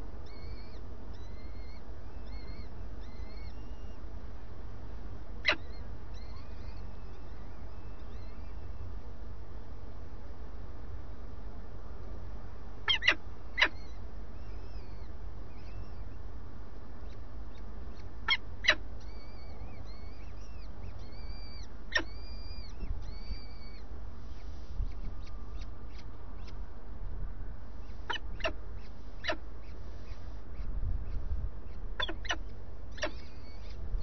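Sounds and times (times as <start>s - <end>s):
falcon chicks calling: 0.0s - 4.1s, 5.4s - 8.9s, 12.8s - 16.2s, 17.0s - 26.6s, 27.8s - 34.0s
steady low hum: 0.0s - 34.0s.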